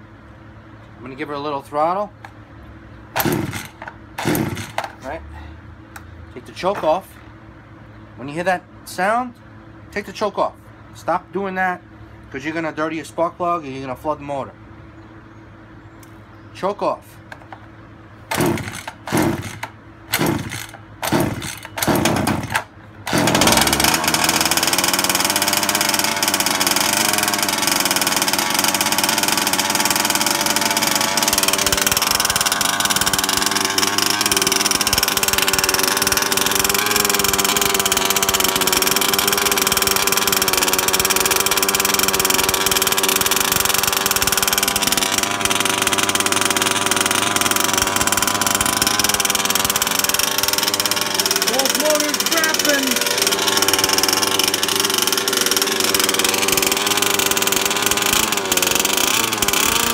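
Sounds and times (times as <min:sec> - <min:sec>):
small engine sputtering and idling: 0:02.2 - 0:07.2, 0:17.3 - 0:59.9.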